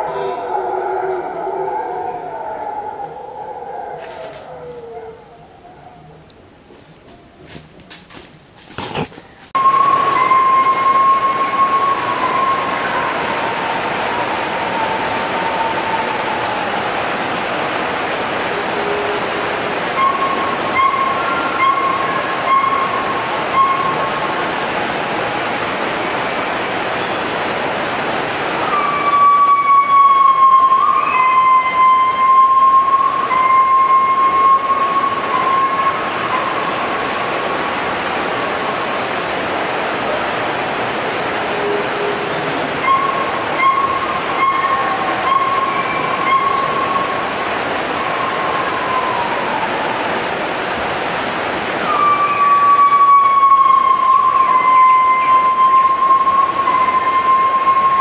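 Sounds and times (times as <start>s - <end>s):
insect high whistling call: 0.0s - 7.7s, 9.6s - 16.9s, 19.9s - 24.2s, 28.6s - 36.8s, 42.8s - 47.3s, 47.9s - 50.0s, 51.8s - 58.0s
forest background hiss: 0.0s - 58.0s.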